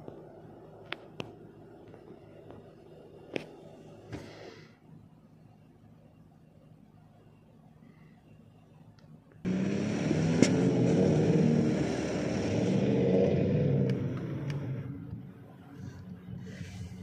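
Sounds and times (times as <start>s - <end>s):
vehicle engine running hard: 9.4s - 17.0s.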